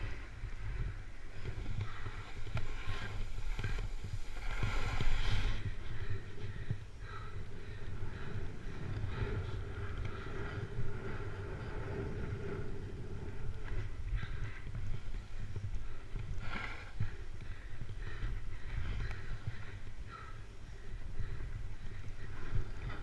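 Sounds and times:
wind buffeting microphone: 0:00.0 - 0:23.0
snowboard edge scraping snow: 0:02.7 - 0:05.6.

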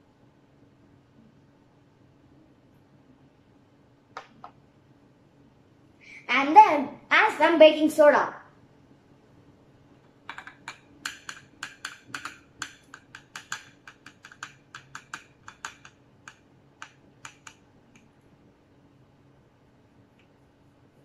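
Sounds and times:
fingers tapping a small cup: 0:10.3 - 0:17.6.

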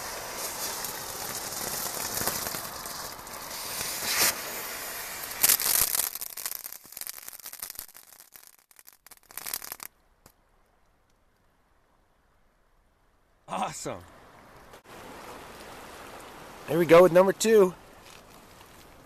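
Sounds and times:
firework crackling: 0:00.0 - 0:09.9
firework spark fountain hissing: 0:00.0 - 0:09.9
sharp loud firework cracks: 0:00.0 - 0:09.9.

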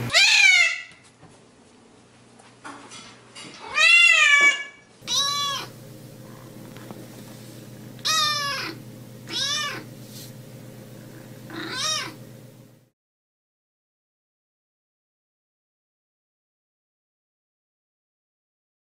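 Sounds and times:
cat meowing: 0:00.1 - 0:01.0, 0:03.6 - 0:05.8, 0:08.0 - 0:09.9, 0:11.5 - 0:12.2
kitten meows: 0:00.1 - 0:01.0, 0:03.6 - 0:05.7, 0:08.0 - 0:09.9, 0:11.5 - 0:12.2
steady low hum: 0:05.0 - 0:12.9.

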